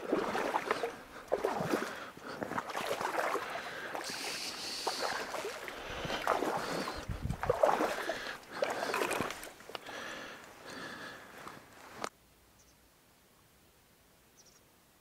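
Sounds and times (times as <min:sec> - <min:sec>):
water splashing: 0:00.0 - 0:11.0
reed stems rustling: 0:00.0 - 0:12.1.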